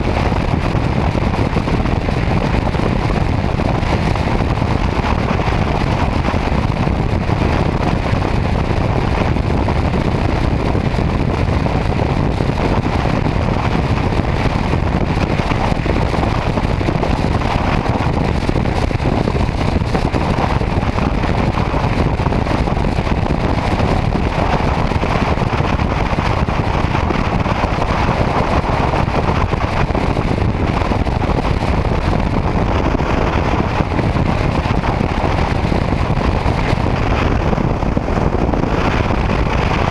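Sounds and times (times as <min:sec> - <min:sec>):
motorcycle road noise: 0:00.0 - 0:39.9
wind on microphone: 0:00.0 - 0:39.9.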